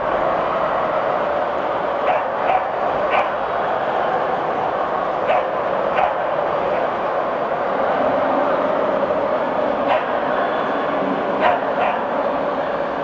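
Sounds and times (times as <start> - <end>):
hubbub of busy hall: 0.0 - 13.0
dogs barking: 2.0 - 3.4, 5.2 - 6.3, 9.8 - 10.3, 11.4 - 12.2.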